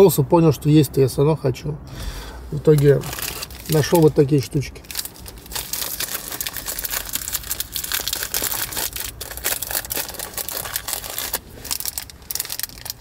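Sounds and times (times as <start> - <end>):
snack packet crinkling: 2.7 - 13.0.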